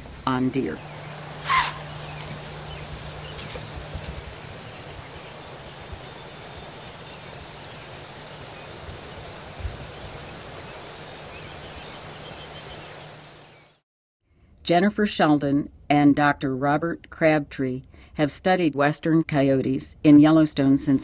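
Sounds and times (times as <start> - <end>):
insects trilling: 0.0 - 13.8.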